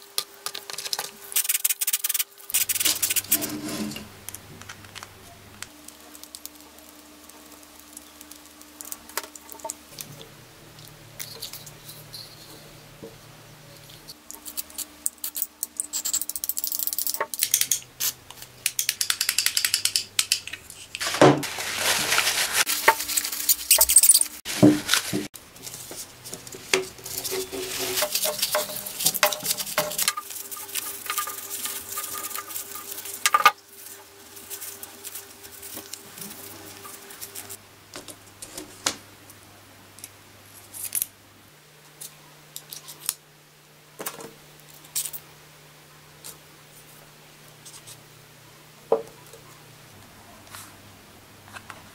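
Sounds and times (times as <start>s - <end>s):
small parts clicking and clattering: 10.8s - 12.7s, 13.8s - 21.0s, 26.7s - 33.9s
noisy rustling: 20.8s - 37.6s.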